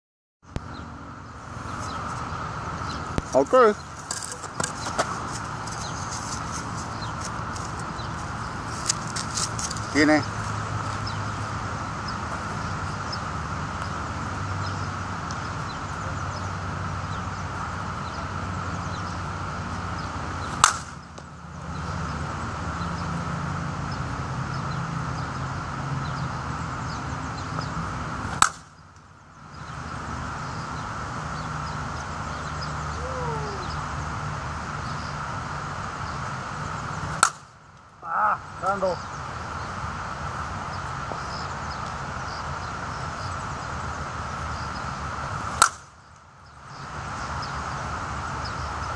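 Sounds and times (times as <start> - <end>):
steady background noise: 0.5 - 48.9
bat cracking a ball: 20.5 - 21.0, 28.3 - 28.8, 37.1 - 37.6, 45.5 - 45.9.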